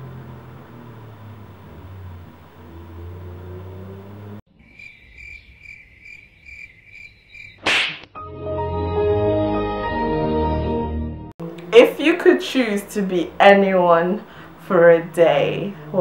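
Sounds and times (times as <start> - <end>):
cricket chirping: 4.5 - 7.6
music: 8.2 - 14.2.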